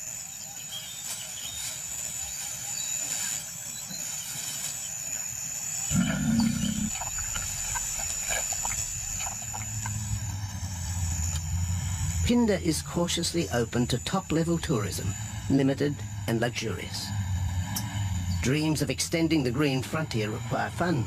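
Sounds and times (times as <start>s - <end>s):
steady high whine: 0.0s - 21.0s
low steady hum: 5.1s - 21.0s
lion growling: 5.9s - 21.0s.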